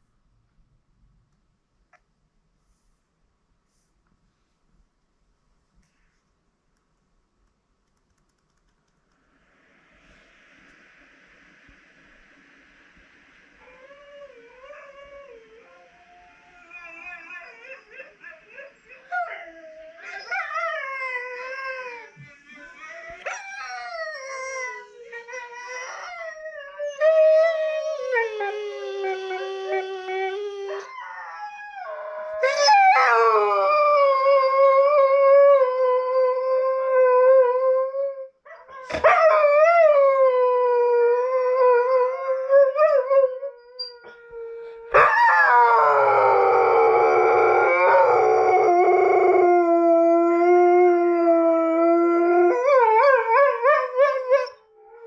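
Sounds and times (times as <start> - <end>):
dog howling: 23.1 - 55.0.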